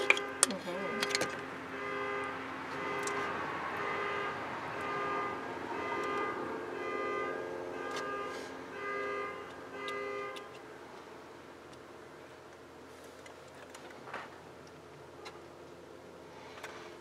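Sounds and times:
car alarm electronic tones: 0.0s - 10.5s.

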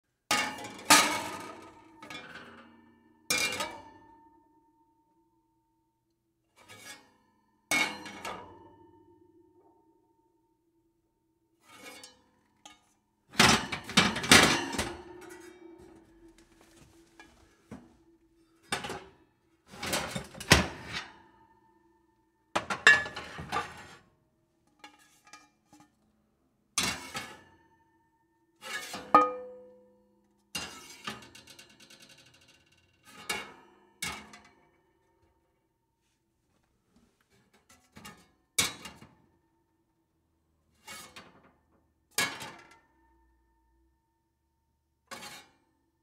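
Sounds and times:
metal pans clattering: 13.4s - 18.0s, 22.6s - 24.0s, 28.8s - 29.8s
short metallic ring: 29.2s - 29.8s.

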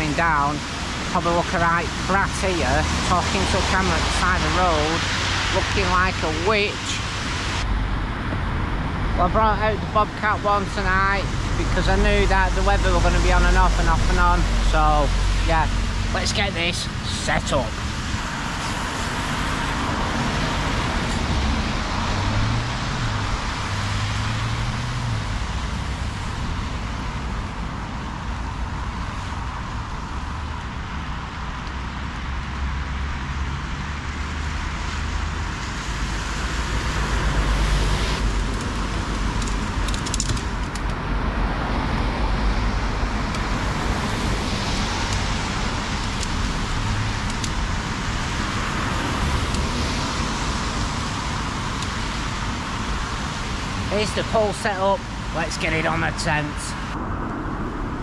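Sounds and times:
heavy vehicle passing: 0.0s - 58.0s
road traffic passing: 0.0s - 58.0s.

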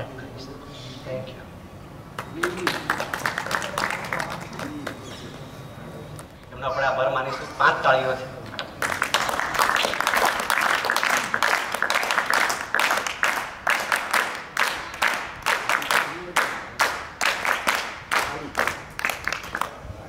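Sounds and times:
people clapping: 2.1s - 5.2s, 8.5s - 19.9s.

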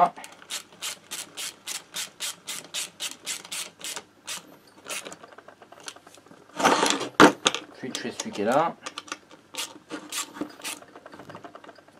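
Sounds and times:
ratchet wrench clicking: 0.5s - 5.1s.

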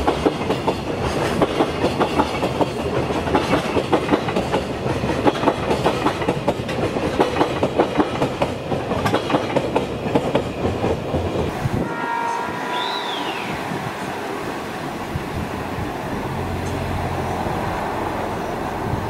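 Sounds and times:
train wheels clattering over rail joints: 0.0s - 11.5s
rumble of rolling train: 0.0s - 19.0s.

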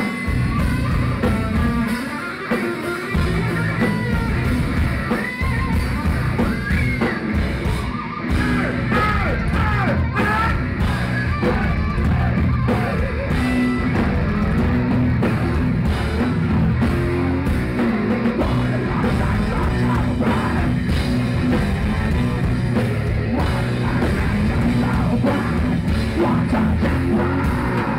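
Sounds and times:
heavy metal band playing live: 0.0s - 27.9s
shouted and sung vocals: 8.2s - 13.7s, 18.4s - 22.5s, 23.1s - 27.9s.

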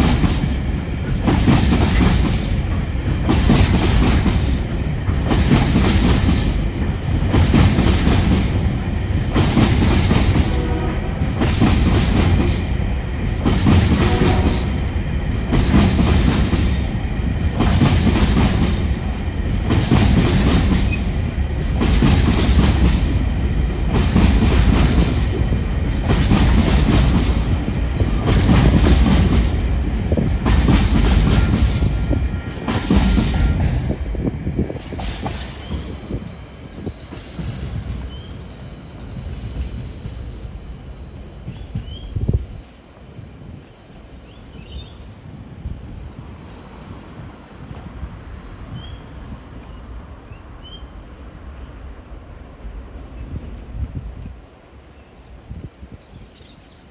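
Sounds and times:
train wheels clattering over rail joints: 0.0s - 38.4s.

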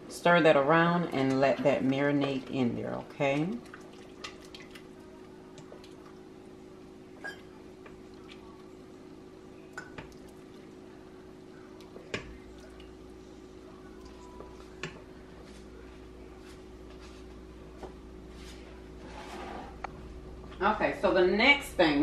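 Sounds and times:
steady low hum: 0.0s - 22.0s
wet stirring: 1.2s - 6.3s.

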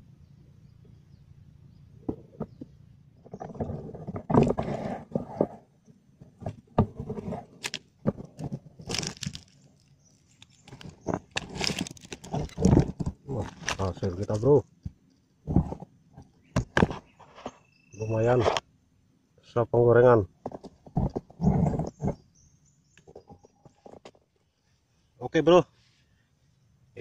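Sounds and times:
plastic bag rustling and clicking: 7.5s - 14.9s.

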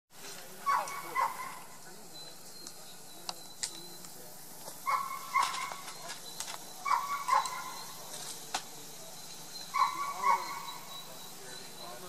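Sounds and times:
dog yelping: 0.6s - 1.7s, 4.9s - 5.9s, 6.8s - 8.0s, 9.7s - 10.9s.

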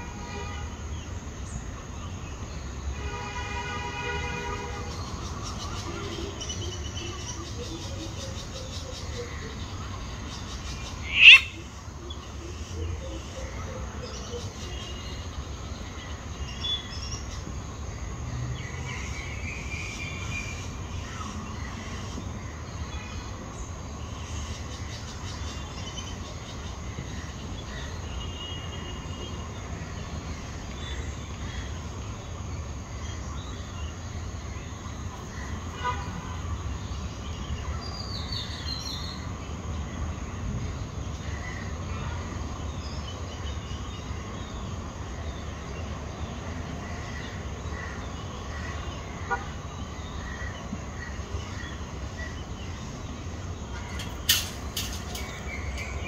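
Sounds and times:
faint bird chirps: 5.5s - 15.4s.

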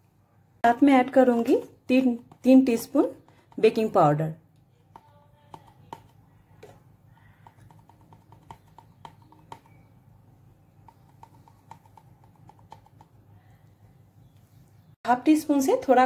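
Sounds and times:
spoon tapping metal sieve: 7.4s - 9.9s.

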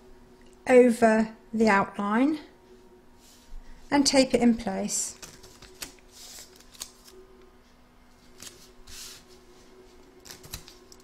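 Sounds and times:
hands smoothing fabric: 8.8s - 9.9s
masking tape pulled and torn: 10.2s - 10.8s.

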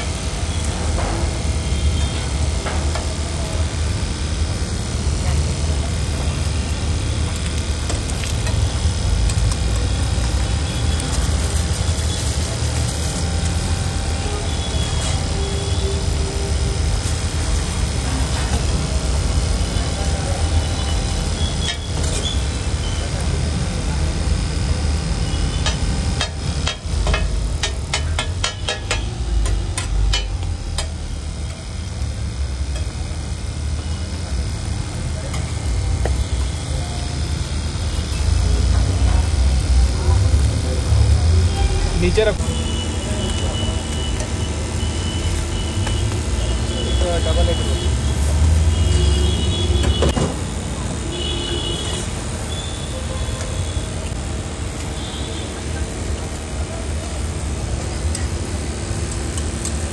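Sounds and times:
ladle scraping on griddle: 7.8s - 17.5s, 21.4s - 23.0s, 25.5s - 31.7s
metal spatula striking griddle: 25.6s - 31.0s.

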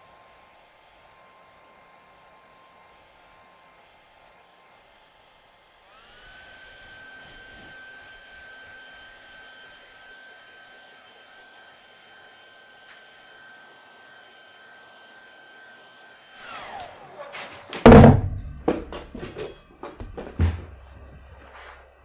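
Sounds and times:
hair dryer whining: 0.0s - 22.0s
loud thump: 17.8s - 20.8s.

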